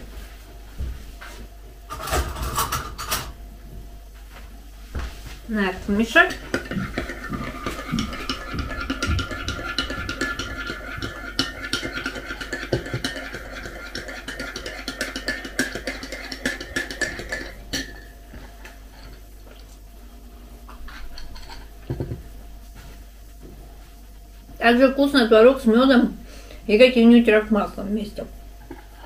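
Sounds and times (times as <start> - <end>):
teaspoon stirring in a ceramic mug: 6.3 - 18.1.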